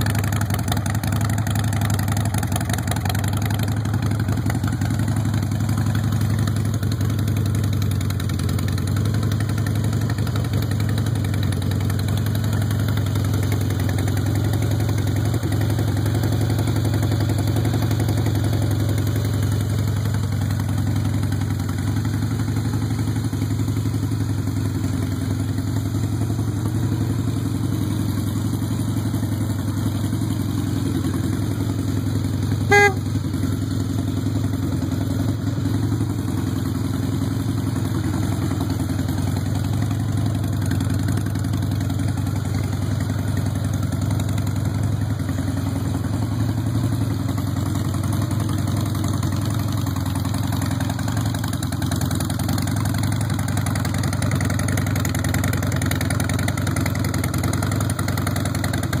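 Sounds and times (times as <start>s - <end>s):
motorcycle engine idling: 0.0s - 59.0s
short beep: 32.7s - 33.1s.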